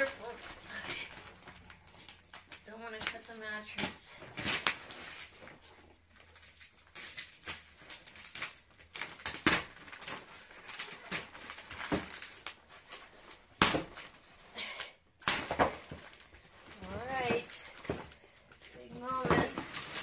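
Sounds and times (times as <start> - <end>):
plastic crinkling: 0.0 - 20.0
scissors snipping plastic wrap: 6.4 - 12.6.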